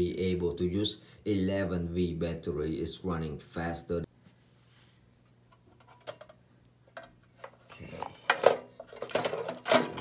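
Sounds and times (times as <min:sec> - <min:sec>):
clattering and knocks: 0:08.3 - 0:10.0.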